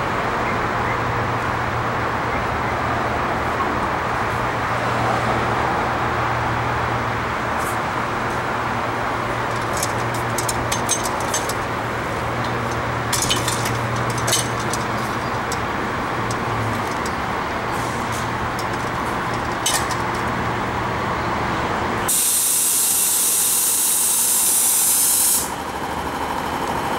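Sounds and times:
streetcar low hum: 0.0s - 26.9s
compressed air hissing: 22.1s - 25.5s.

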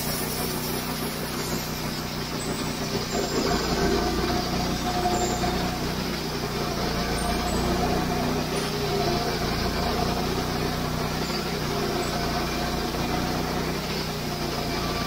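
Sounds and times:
band sawmill sawing wood: 0.0s - 15.0s.

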